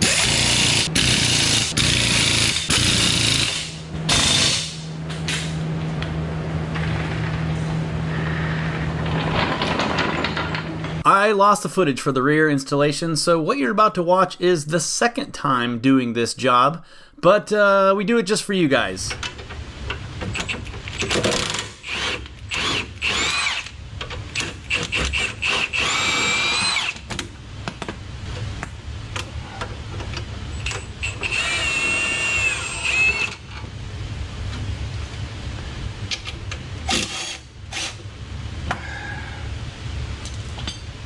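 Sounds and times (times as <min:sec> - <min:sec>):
impact wrench whine: 0:00.0 - 0:05.6, 0:20.2 - 0:27.1, 0:30.5 - 0:33.6, 0:36.8 - 0:38.1
steady low hum: 0:00.0 - 0:41.0
tools clinking and knocking: 0:40.2 - 0:41.0.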